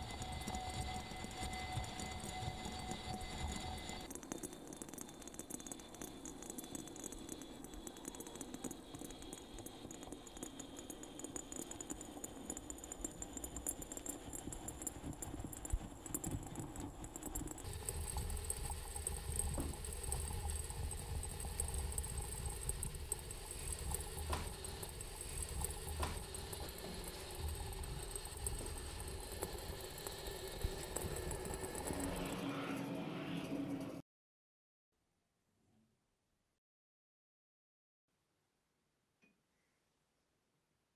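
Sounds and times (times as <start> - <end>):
crackle of small bubbles: 0.0 - 32.4
low bubbling rumble: 13.8 - 32.3.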